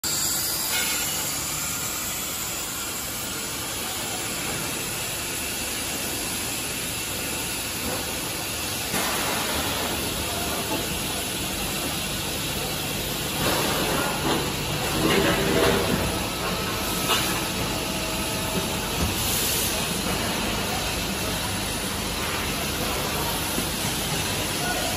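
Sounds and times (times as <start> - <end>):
machine mechanical hiss and hum: 0.0 - 24.9.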